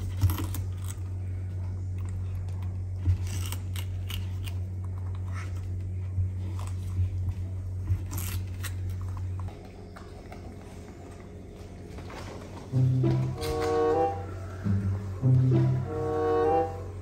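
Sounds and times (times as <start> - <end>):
cucumber crunching and snapping: 0.0 - 1.2, 1.9 - 5.8, 6.4 - 10.4
steady low hum: 0.0 - 17.0.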